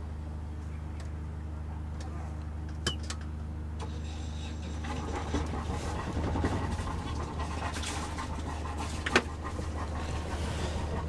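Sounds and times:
diesel engine idling: 0:03.6 - 0:11.0.

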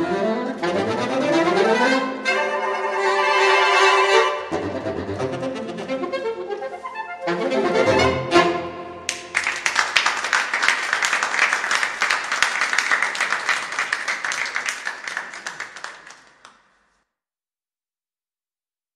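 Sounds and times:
audience applause: 0:09.1 - 0:16.6.

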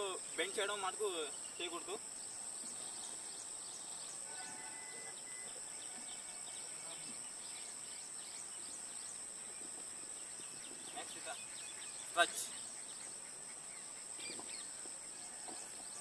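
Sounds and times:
insects trilling: 0:00.0 - 0:16.0
open field background noise: 0:00.0 - 0:16.0.

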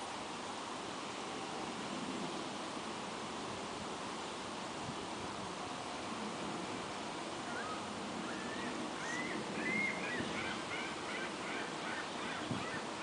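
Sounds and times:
outdoor background hiss: 0:00.0 - 0:13.0
rising and falling animal calls: 0:07.4 - 0:13.0.

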